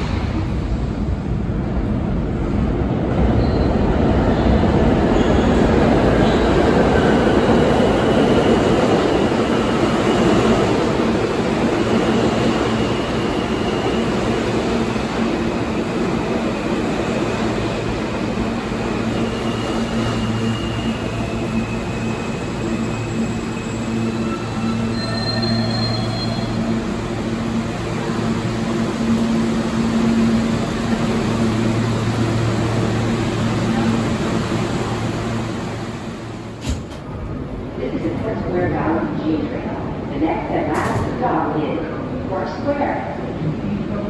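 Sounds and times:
train brakes squealing: 3.3 - 3.9, 19.1 - 26.8.

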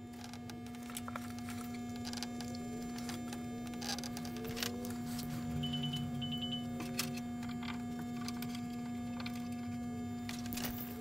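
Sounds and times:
electrical hum: 0.0 - 11.0
short high-pitched beeps: 5.6 - 6.7.

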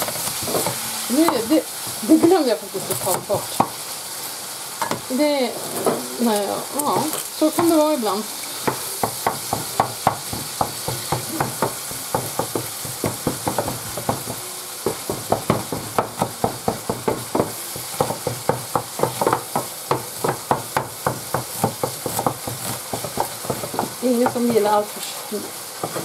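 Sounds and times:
meat sizzling in a pan: 0.0 - 26.0
knife chopping on cutting board: 6.9 - 7.8, 8.6 - 24.6.

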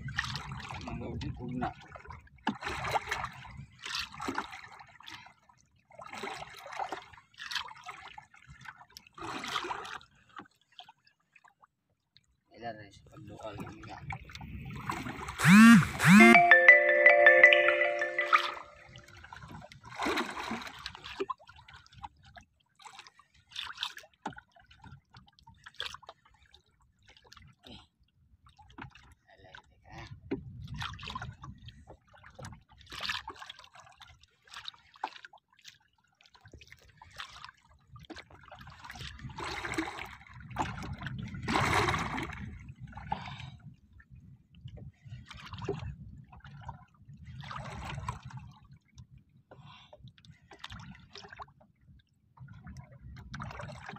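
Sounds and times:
sea water splashing against boat: 0.1 - 5.2, 19.5 - 26.2, 36.3 - 43.7, 52.6 - 53.9.

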